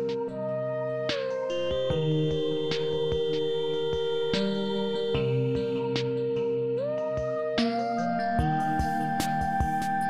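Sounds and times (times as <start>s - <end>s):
rising held synth notes: 0.0s - 10.0s
light regular beat: 8.4s - 10.0s.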